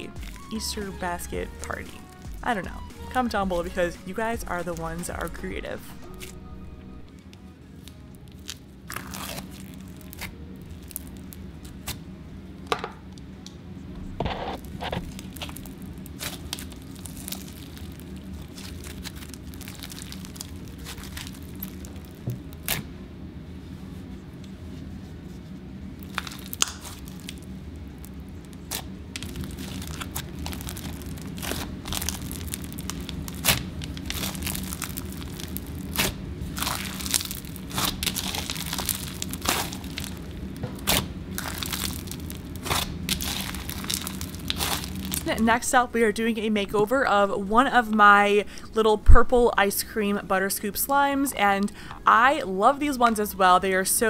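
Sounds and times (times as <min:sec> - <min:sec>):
hands squishing crunchy slime: 0:07.8 - 0:12.0, 0:14.3 - 0:22.8, 0:26.0 - 0:45.4.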